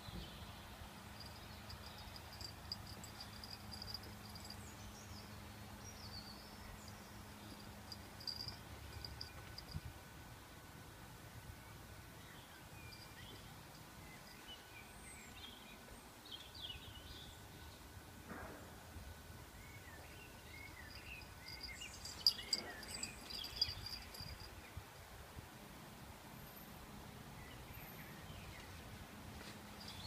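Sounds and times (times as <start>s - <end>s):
birds chirping: 0.0s - 9.7s, 19.8s - 24.6s.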